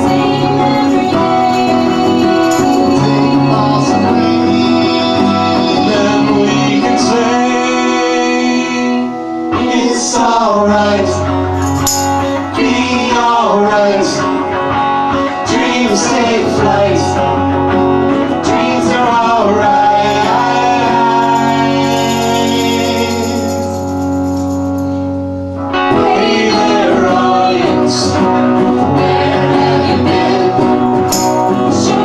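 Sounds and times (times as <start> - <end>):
people singing together: 0.0 - 23.7, 25.8 - 32.0
guitar accompaniment: 0.0 - 32.0.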